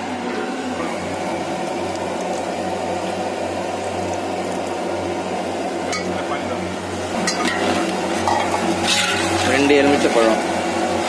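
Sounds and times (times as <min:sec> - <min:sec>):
constant low hum: 0:00.0 - 0:11.0
gas burner roaring: 0:00.0 - 0:11.0.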